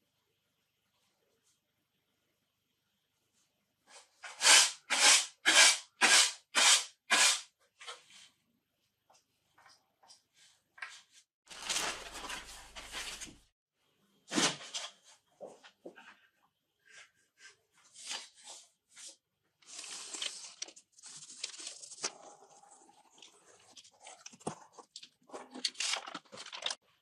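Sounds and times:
scraping strokes on wood: 0:04.2 - 0:07.5.

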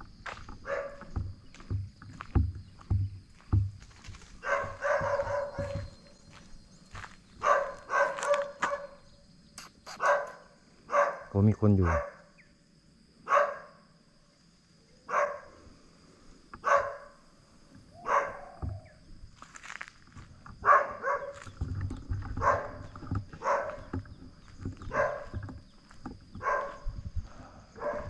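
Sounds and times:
dog barking: 0:00.6 - 0:01.1, 0:04.4 - 0:05.8, 0:07.4 - 0:09.0, 0:09.9 - 0:12.3, 0:13.2 - 0:13.8, 0:15.1 - 0:15.5, 0:16.6 - 0:17.2, 0:18.0 - 0:18.7, 0:20.6 - 0:21.4, 0:22.4 - 0:23.9, 0:24.8 - 0:25.4, 0:26.4 - 0:26.8, 0:27.8 - 0:28.0.

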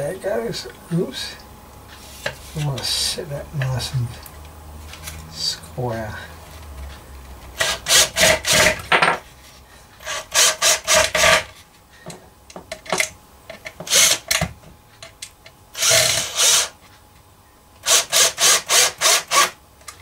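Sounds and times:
power drill bursts: 0:13.9 - 0:14.2, 0:15.8 - 0:16.8, 0:17.8 - 0:19.6.

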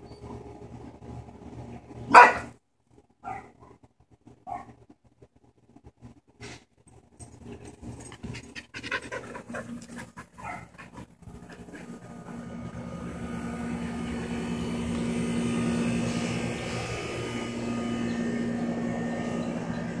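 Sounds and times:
mechanical drone with low hum: 0:00.0 - 0:20.0
dog panting: 0:08.1 - 0:12.0.

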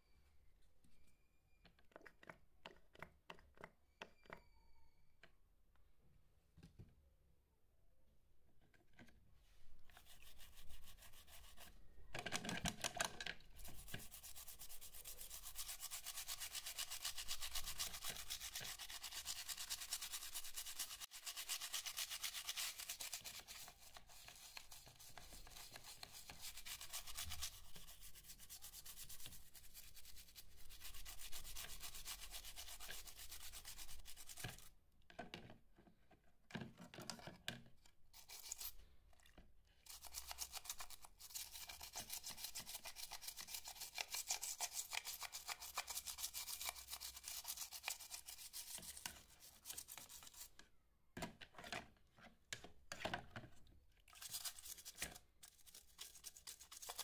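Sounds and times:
toothbrush scrubbing plastic: 0:09.8 - 0:11.8, 0:12.4 - 0:34.7, 0:38.1 - 0:50.6, 0:54.0 - 0:57.0.

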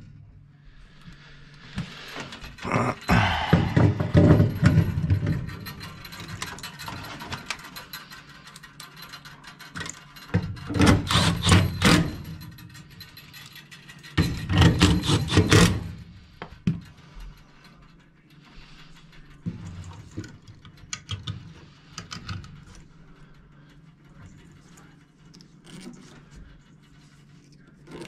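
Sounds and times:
cordless drill driving screws into metal: 0:10.8 - 0:12.0.

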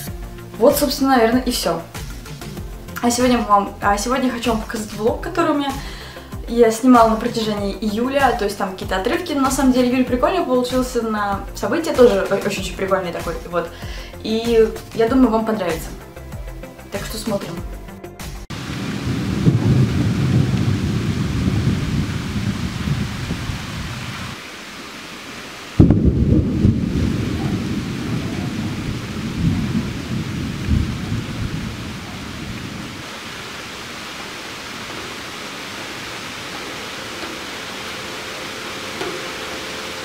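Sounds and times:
steady rain: 0:00.0 - 0:16.0, 0:18.5 - 0:40.0
thunder rumbling: 0:18.5 - 0:24.4, 0:25.7 - 0:40.0.

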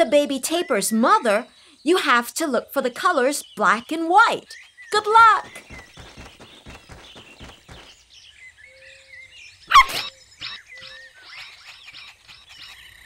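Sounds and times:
faint bird chirps: 0:00.0 - 0:13.0
cartoon running footsteps: 0:04.9 - 0:08.1
puppy bark: 0:09.7 - 0:10.0.

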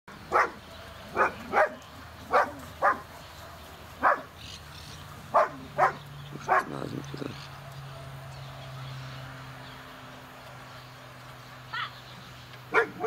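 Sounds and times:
dog barking: 0:00.3 - 0:03.1, 0:04.0 - 0:04.3, 0:05.3 - 0:06.8, 0:12.7 - 0:13.0.

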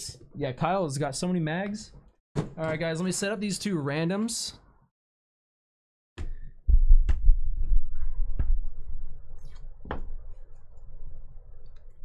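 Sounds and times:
low rumble: 0:06.7 - 0:10.3.

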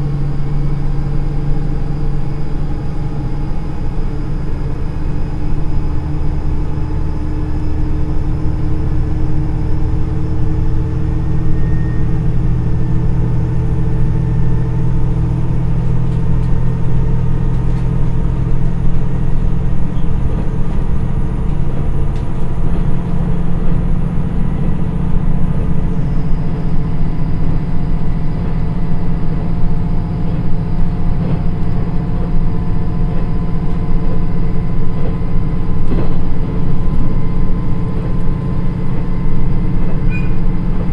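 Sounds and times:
diesel engine droning: 0:00.0 - 0:40.9
train running noise: 0:00.0 - 0:40.9.

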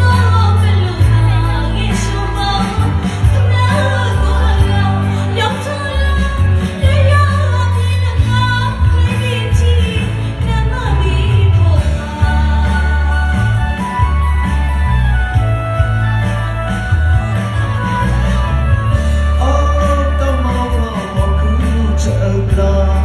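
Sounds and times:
woman singing into microphone: 0:00.0 - 0:14.4
amplified backing music with bass: 0:00.0 - 0:23.0.

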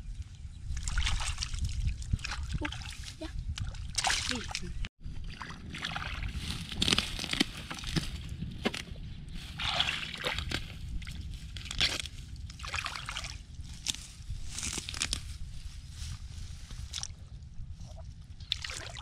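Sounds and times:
steady low rumble: 0:00.0 - 0:19.0
hands sloshing through muddy water: 0:00.7 - 0:07.8, 0:09.5 - 0:14.0, 0:17.9 - 0:19.0.

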